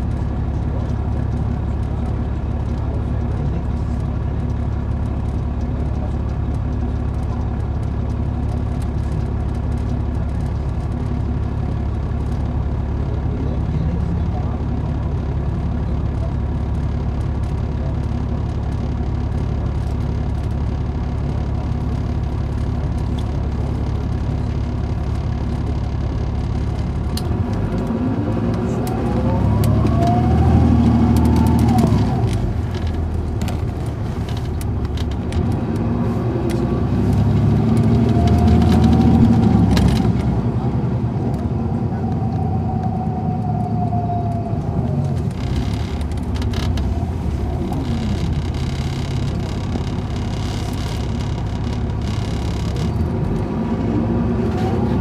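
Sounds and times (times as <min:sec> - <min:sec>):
diesel bus engine rumbling: 0:00.0 - 0:55.0
transmission whine: 0:18.4 - 0:35.7, 0:36.4 - 0:55.0
body knocks and rattles: 0:45.2 - 0:53.1.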